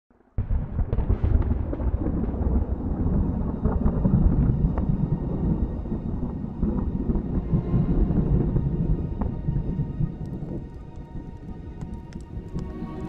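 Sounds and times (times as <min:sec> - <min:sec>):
deep steady rumble: 0:01.8 - 0:13.0
faint crackles: 0:09.1 - 0:13.0.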